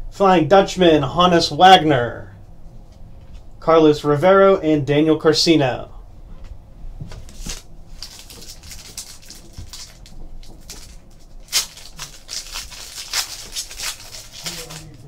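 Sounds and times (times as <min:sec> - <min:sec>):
foil wrapper crinkling and tearing: 0:07.2 - 0:15.0.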